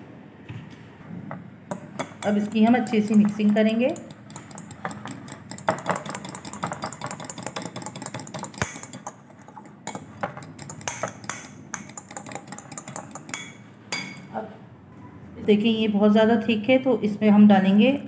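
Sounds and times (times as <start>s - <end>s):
spoon and knife clicking on glass bowl: 1.7s - 14.3s.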